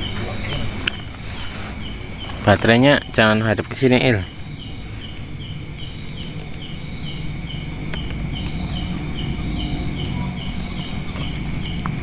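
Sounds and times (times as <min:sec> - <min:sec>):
dry grass rustling and crackling: 0:00.0 - 0:04.5, 0:07.9 - 0:12.0
night insects chirping: 0:00.0 - 0:12.0.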